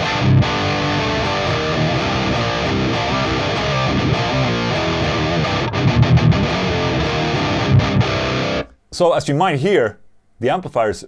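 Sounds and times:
palm-muted guitar chugs: 0.0s - 8.7s
distorted electric guitar chords: 0.0s - 8.8s.

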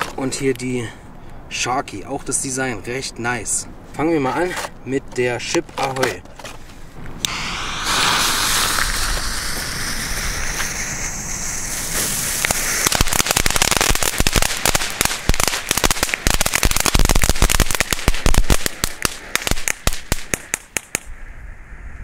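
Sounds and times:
firework crackling pops: 7.2s - 21.1s
firework fountain hissing: 7.2s - 21.1s.

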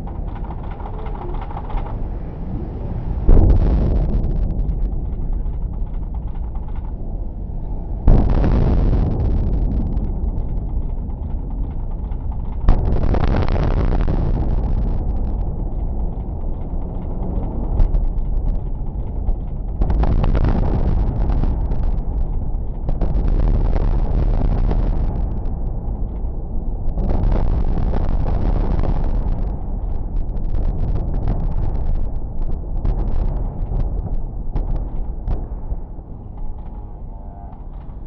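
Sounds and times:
deep rumble of building collapse: 0.0s - 38.0s.

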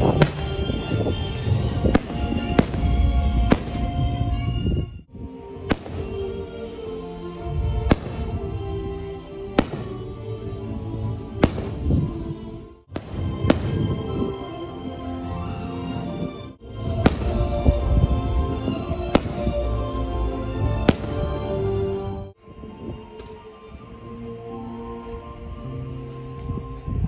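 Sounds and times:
fireworks bursting: 0.0s - 4.2s, 5.7s - 6.4s, 7.8s - 8.5s, 9.6s - 10.0s, 11.4s - 12.1s, 12.9s - 14.4s, 16.7s - 18.0s, 18.6s - 19.8s, 20.8s - 21.5s
music playing: 0.0s - 27.0s.

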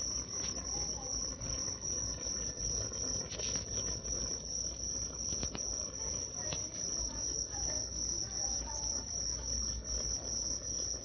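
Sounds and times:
high-pitched insect trill: 0.0s - 11.0s
faint ticks: 0.2s - 7.0s.

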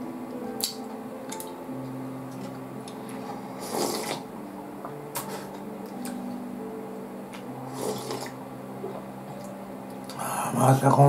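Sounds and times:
noodle slurping: 3.2s - 4.3s, 7.7s - 8.4s
soft long held tones: 4.2s - 10.7s.

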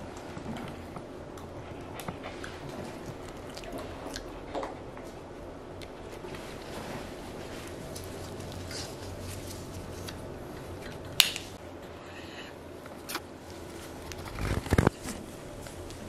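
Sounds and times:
steady low hum: 0.0s - 16.0s
fabric handling noise: 6.2s - 10.2s.

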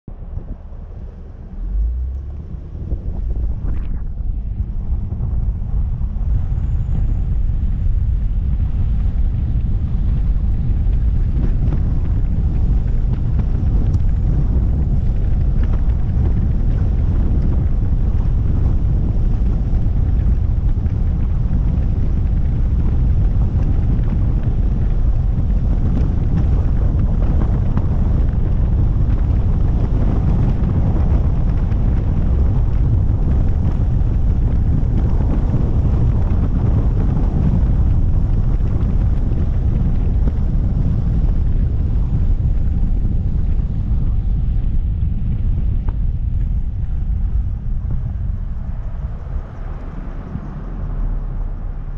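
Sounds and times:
road and tyre noise: 0.0s - 51.9s
wind buffeting microphone: 0.0s - 51.9s
van passing: 45.7s - 51.9s.

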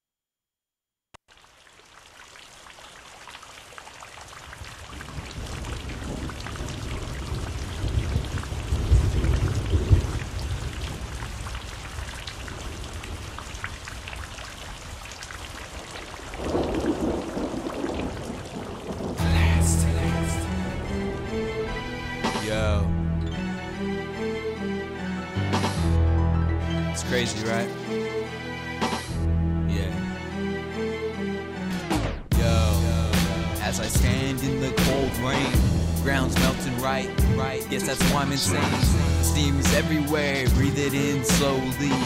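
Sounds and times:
rain falling: 1.3s - 22.6s
thunder rumbling: 4.5s - 23.0s.

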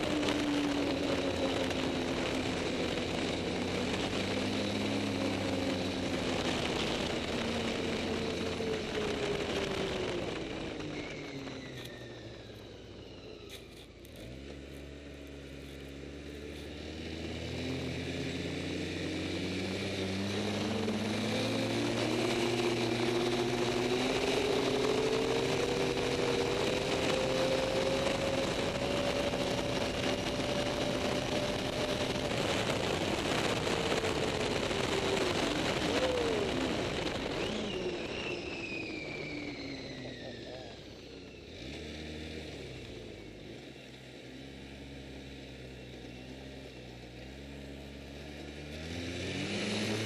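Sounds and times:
snowmobile engine accelerating: 0.0s - 50.0s
steady rushing noise: 19.6s - 39.5s.

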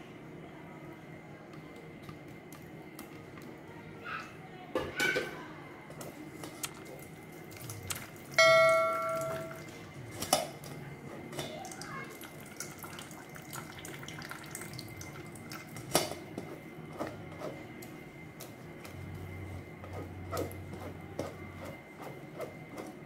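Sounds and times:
bell-like ding: 8.4s - 9.6s.

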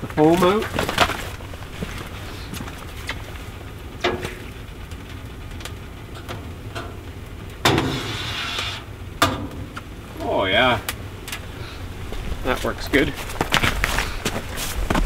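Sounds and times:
sap boiling with low rumble: 0.0s - 15.0s
rush of noise from skimming foam: 7.8s - 8.8s.

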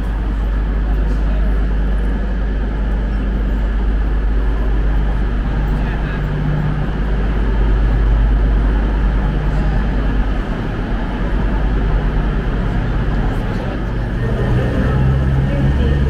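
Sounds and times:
trains rumbling and humming: 0.0s - 16.0s.

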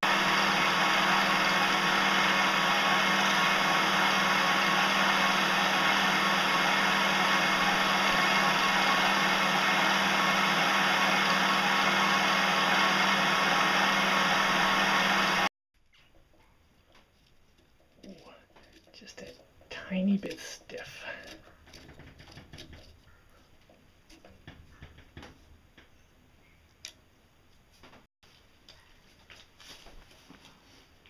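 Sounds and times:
lathe motor hum: 0.0s - 15.5s.

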